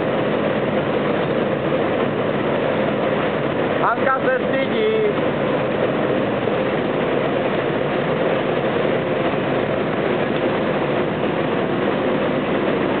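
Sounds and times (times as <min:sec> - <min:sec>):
faint constant hum: 0:00.0 - 0:13.0
hop picking machine running: 0:00.0 - 0:13.0.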